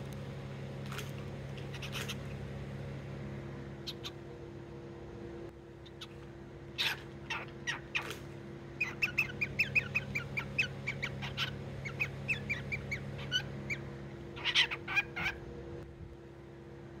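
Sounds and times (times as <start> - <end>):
cockatiel harsh calls: 1.7 - 2.2, 6.8 - 8.2, 8.8 - 15.4
cockatiel chirping: 8.8 - 13.8.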